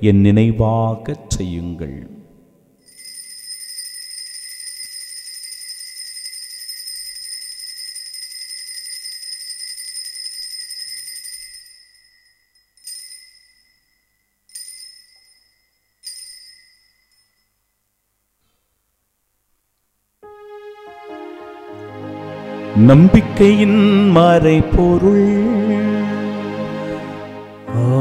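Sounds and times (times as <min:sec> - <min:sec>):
altar bells ringing: 0:02.8 - 0:17.8
music: 0:20.2 - 0:28.0.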